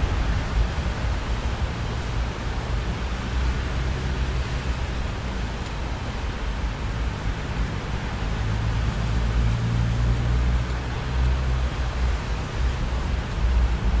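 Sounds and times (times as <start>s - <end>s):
steady rain hiss: 0.0s - 14.0s.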